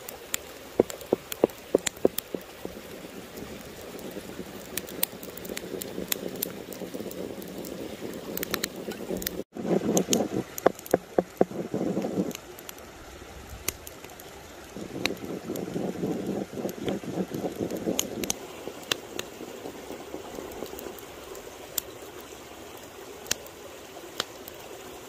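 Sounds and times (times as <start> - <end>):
small stream running: 0.0 - 25.0
sharp taps: 0.8 - 2.9, 8.4 - 12.4
stick stirring egg and flour: 0.8 - 12.4.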